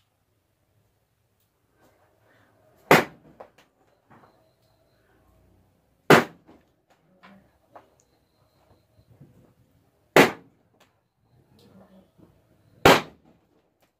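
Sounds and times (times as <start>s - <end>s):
balloons popping: 6.1s - 6.4s, 10.2s - 10.5s, 12.8s - 13.2s.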